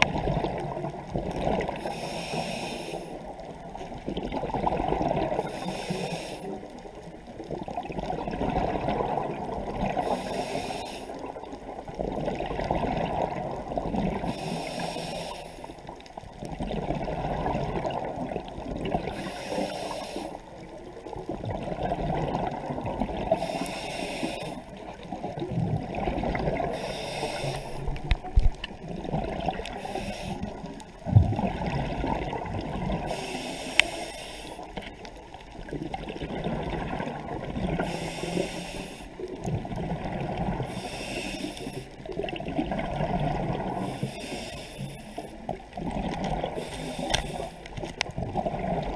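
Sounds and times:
regulator hissing inhale: 1.8s - 3.3s, 5.4s - 6.6s, 10.0s - 11.3s, 14.2s - 15.8s, 19.1s - 20.5s, 23.3s - 24.7s, 26.6s - 28.0s, 29.6s - 30.8s, 33.0s - 34.8s, 37.8s - 39.3s, 40.7s - 42.0s, 43.8s - 45.4s, 46.5s - 47.8s
bubbling exhale underwater: 4.0s - 5.5s, 7.5s - 10.2s, 12.0s - 14.3s, 16.4s - 19.3s, 21.2s - 23.4s, 24.7s - 33.4s, 35.6s - 38.2s, 42.0s - 44.0s, 45.5s - 48.9s.

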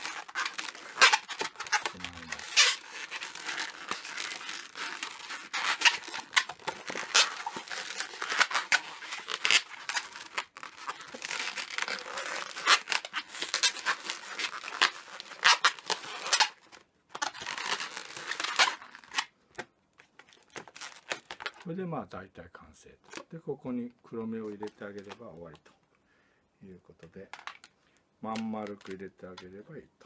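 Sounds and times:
balloons squeaking and rubbing: 0.0s - 19.3s, 20.3s - 21.7s.

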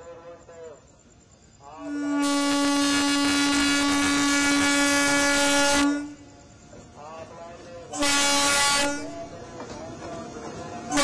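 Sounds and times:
train horn blast: 1.7s - 6.3s, 7.9s - 9.3s.

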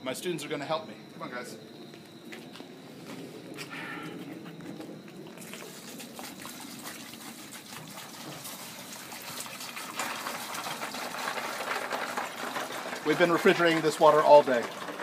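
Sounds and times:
water pouring into jar of ice: 5.4s - 15.0s.

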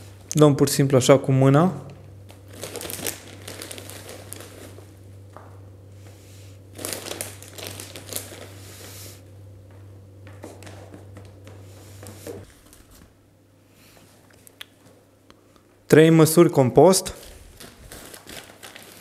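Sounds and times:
sack crinkling: 2.3s - 5.0s, 6.7s - 8.9s, 17.2s - 19.0s
dry peat rustling: 2.4s - 5.0s, 6.7s - 9.2s, 17.2s - 19.0s.

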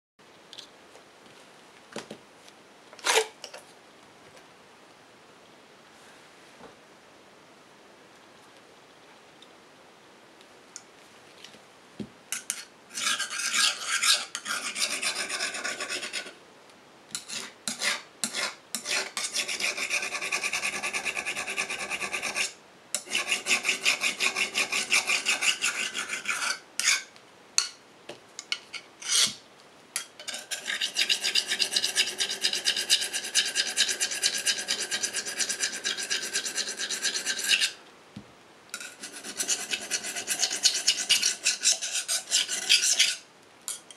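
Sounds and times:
abrasive stick scraping steel blade: 12.4s - 16.3s, 30.0s - 37.8s, 38.8s - 43.9s.

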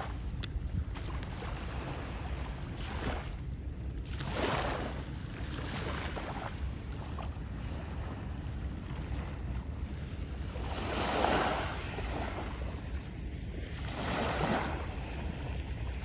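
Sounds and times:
water lapping at shore: 0.0s - 16.0s
wind buffeting microphone: 0.0s - 16.0s.

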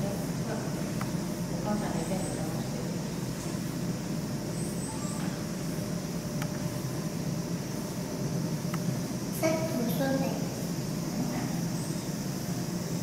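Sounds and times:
low rumbling background noise: 0.0s - 13.0s
faint high chirps: 4.5s - 5.4s.

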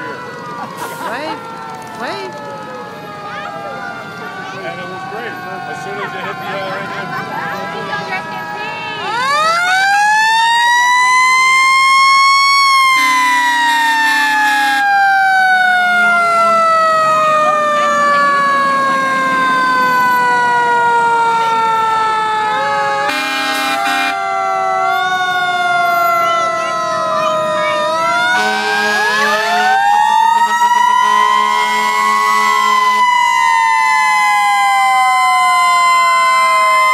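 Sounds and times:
fire engine siren wailing: 0.0s - 36.9s
horn blasts: 12.9s - 14.9s, 23.0s - 24.2s, 28.3s - 29.8s, 30.8s - 33.1s.

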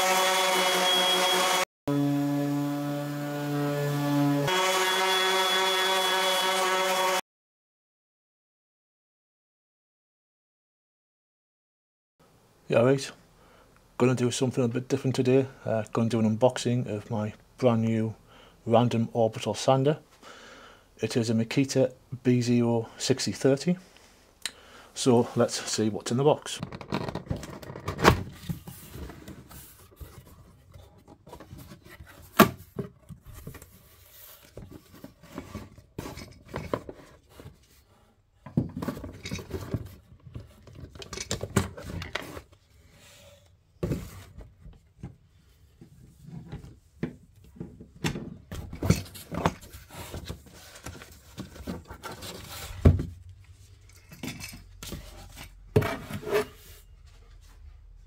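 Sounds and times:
cardboard rustling: 48.6s - 53.8s.

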